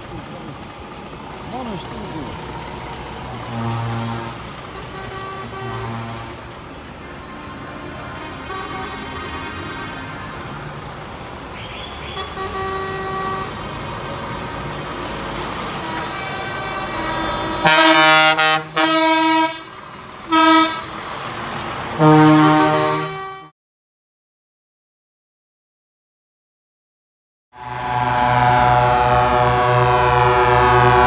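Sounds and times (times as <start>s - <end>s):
truck engines running: 0.0s - 23.4s, 27.6s - 31.0s
truck air horn blasts: 2.8s - 10.8s, 11.9s - 21.1s, 21.9s - 23.5s, 27.6s - 31.0s.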